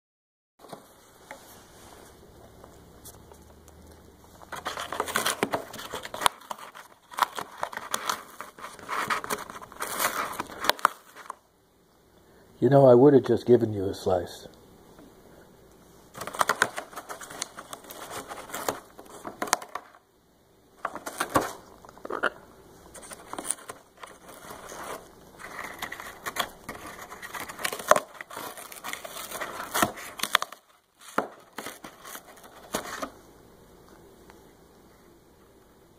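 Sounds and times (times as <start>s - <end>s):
parrot tearing cardboard: 4.4s - 11.4s, 16.1s - 20.0s, 20.8s - 21.8s, 22.9s - 33.2s.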